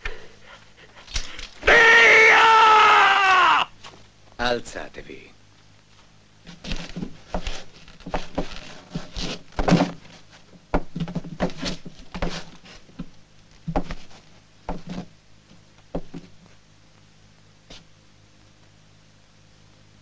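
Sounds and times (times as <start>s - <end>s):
irregular thuds and knocks: 6.5s - 15.1s, 15.9s - 16.4s.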